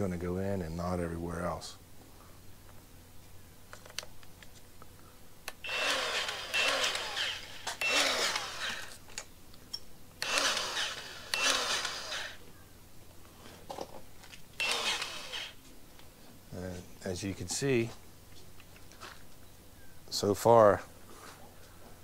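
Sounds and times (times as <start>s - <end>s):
grease gun spurts: 5.7s - 9.0s, 10.2s - 12.4s.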